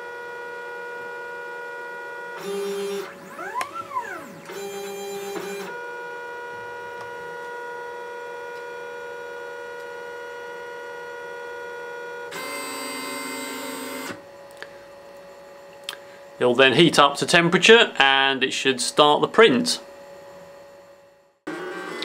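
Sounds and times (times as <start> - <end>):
stepper motors whining: 2.2 - 9.0.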